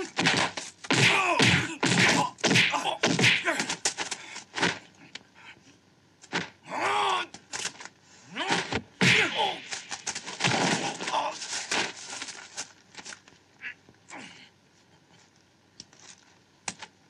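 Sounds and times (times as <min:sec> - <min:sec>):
fighters shouting: 0:00.0 - 0:03.8, 0:06.7 - 0:07.3, 0:08.3 - 0:09.9, 0:10.8 - 0:11.4
punch and kick impacts: 0:00.0 - 0:03.8, 0:08.4 - 0:11.2.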